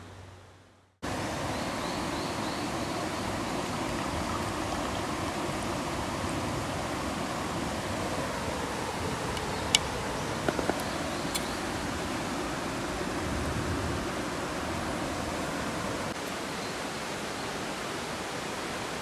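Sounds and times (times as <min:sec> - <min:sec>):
water rushing: 0:01.0 - 0:19.0
small knocks: 0:10.4 - 0:10.9.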